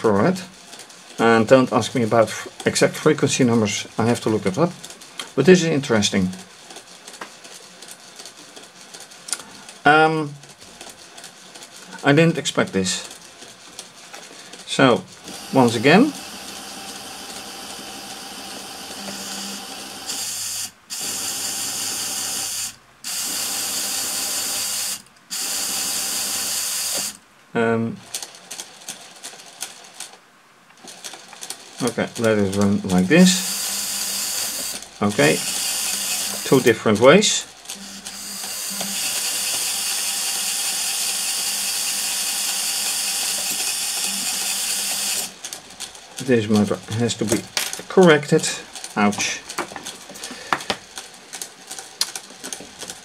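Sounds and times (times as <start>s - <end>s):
small electric motors whirring: 15.2s - 27.2s, 32.3s - 45.5s.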